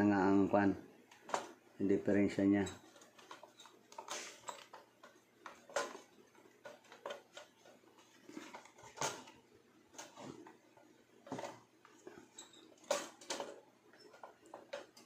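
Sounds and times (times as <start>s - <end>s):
metal parts clicking and knocking: 2.6s - 9.4s, 11.3s - 15.0s.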